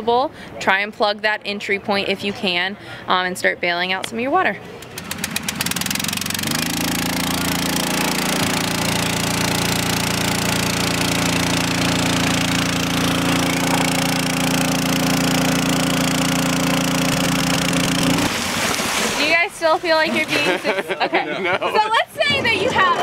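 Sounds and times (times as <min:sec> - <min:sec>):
small water pump engine running: 0:04.8 - 0:20.7.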